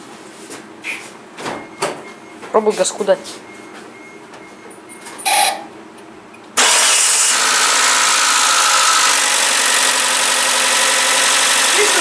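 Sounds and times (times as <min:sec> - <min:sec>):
car engine starting and running: 0:06.6 - 0:12.0.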